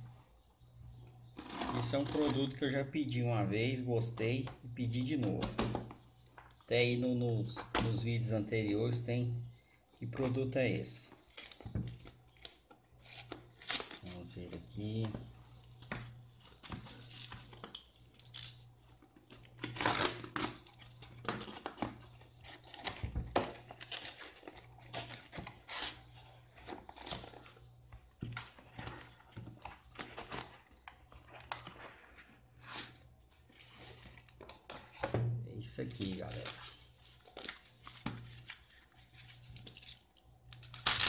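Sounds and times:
tape and cardboard ripping: 0:01.4 - 0:02.6, 0:11.2 - 0:14.2, 0:19.2 - 0:27.5, 0:36.1 - 0:41.0
foam wrap rustling: 0:10.1 - 0:35.0.

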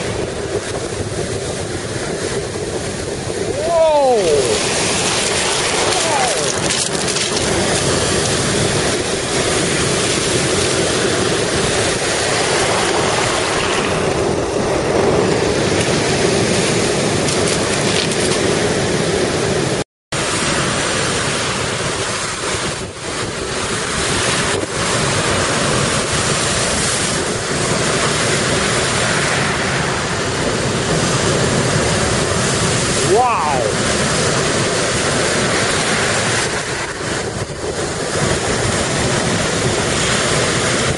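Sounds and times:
waves crashing in heavy surf: 0:00.0 - 0:40.9
wind on microphone: 0:00.0 - 0:40.9.

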